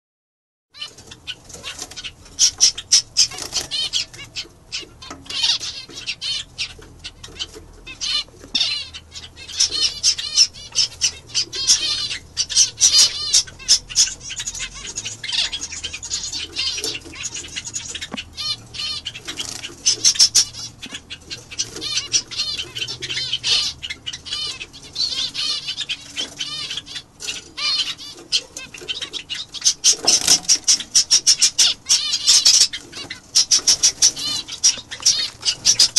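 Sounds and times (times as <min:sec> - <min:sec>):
finches chirping: 0:00.8 - 0:35.9.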